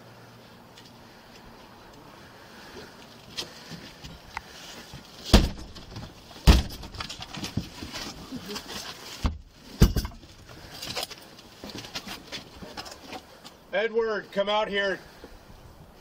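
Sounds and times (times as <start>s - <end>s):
battering ram hitting wooden door: 5.3s - 7.0s.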